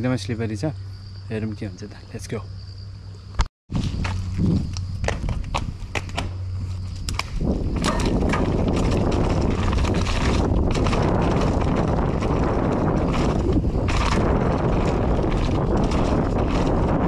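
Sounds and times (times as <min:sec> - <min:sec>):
bike knocks and rattles: 0:03.7 - 0:17.0
bike tyre noise on dirt: 0:03.7 - 0:17.0
wind rushing on microphone: 0:03.7 - 0:17.0.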